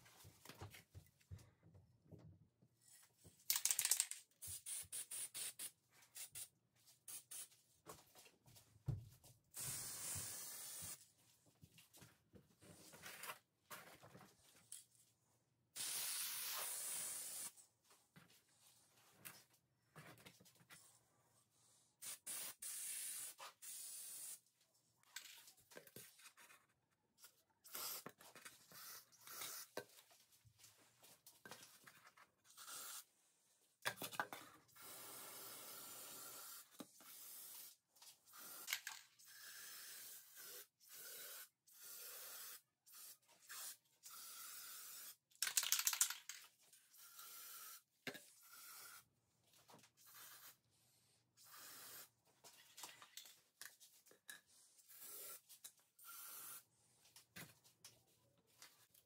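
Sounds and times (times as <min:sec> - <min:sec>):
spray paint can hissing: 0:04.4 - 0:06.4, 0:09.6 - 0:11.0, 0:15.8 - 0:17.5, 0:22.0 - 0:24.4.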